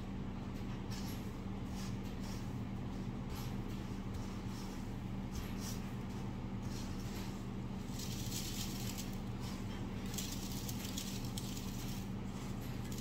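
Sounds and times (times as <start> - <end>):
steady low hum: 0.0 - 13.0
breadcrumbs rustling: 4.1 - 13.0.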